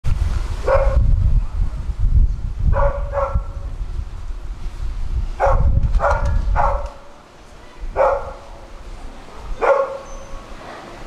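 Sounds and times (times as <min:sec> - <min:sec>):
steady low rumble: 0:00.0 - 0:09.6
dog barking: 0:00.6 - 0:01.0, 0:02.7 - 0:03.6, 0:05.4 - 0:07.1, 0:08.0 - 0:08.5, 0:09.3 - 0:10.8.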